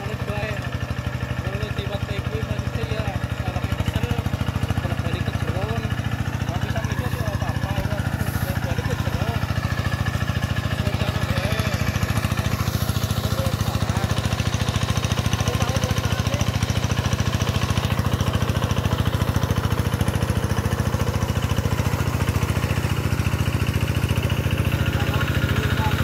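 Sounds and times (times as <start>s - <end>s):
diesel engine running steadily: 0.0s - 26.0s.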